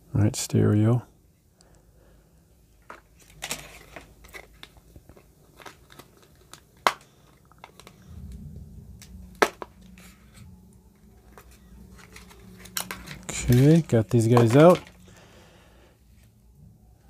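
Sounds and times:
plastic packaging clicks and crinkles: 2.8 - 8.1, 11.0 - 15.2
plastic snapping: 2.9 - 8.0.

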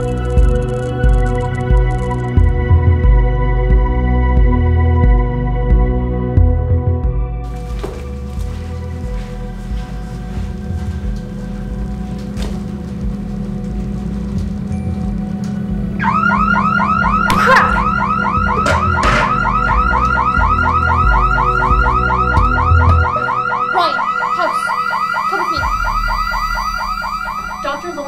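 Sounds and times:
electronic alarm rising chirps: 0.0 - 2.6, 16.0 - 28.0
low music drone: 0.0 - 28.0.

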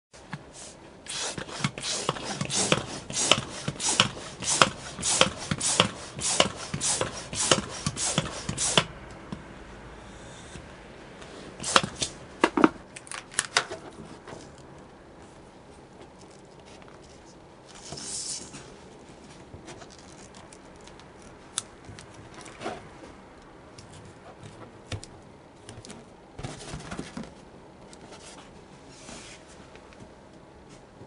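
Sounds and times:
hand pump air strokes: 1.1 - 8.9, 11.6 - 12.1.

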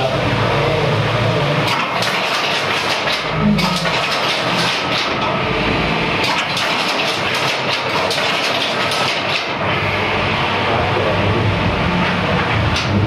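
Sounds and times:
power loom clattering: 1.6 - 10.0, 11.9 - 13.0.

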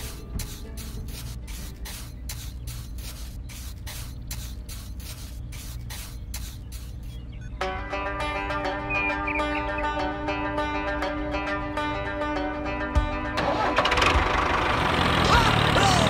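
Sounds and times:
plucked-string music: 0.0 - 2.0, 7.5 - 15.0
trowel scraping wet cement: 0.0 - 7.2.

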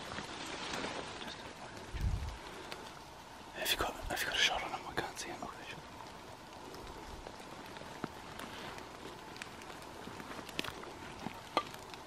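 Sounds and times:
footsteps through undergrowth: 0.0 - 3.0, 5.9 - 12.0
twigs snapping: 6.0 - 12.0.

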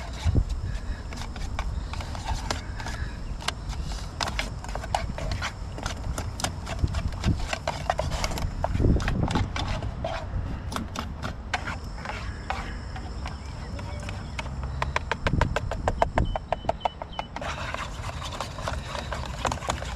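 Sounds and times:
whisk scraping a frying pan: 17.4 - 19.9.

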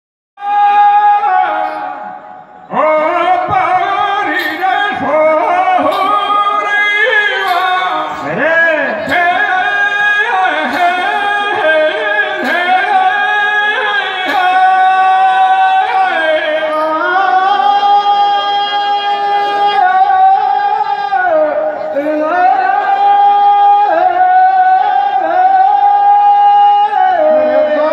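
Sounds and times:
man singing devotional ballad: 0.4 - 27.9
sharp strikes: 3.7 - 16.0.

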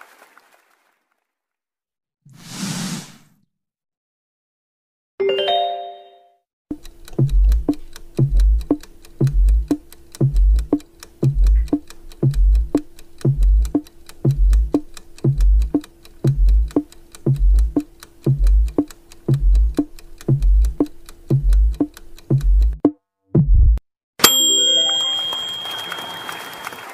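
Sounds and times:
countdown timer music loop: 6.7 - 23.0
short pitched chime: 24.2 - 26.8.

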